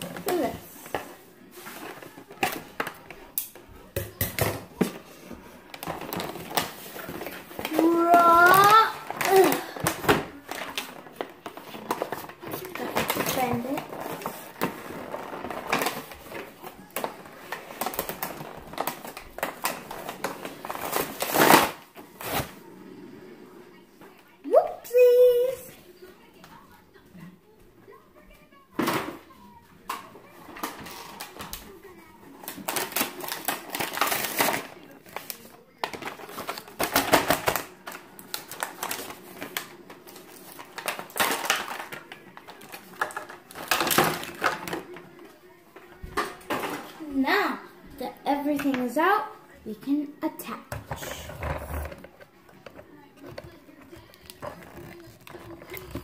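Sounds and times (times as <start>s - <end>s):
paper backing crackling and rustling: 0.0s - 3.9s, 4.6s - 22.7s, 28.5s - 56.0s
plastic packaging crinkling: 5.6s - 22.6s, 30.2s - 46.9s, 51.0s - 56.0s
paper ripping: 5.8s - 22.6s, 32.4s - 44.9s.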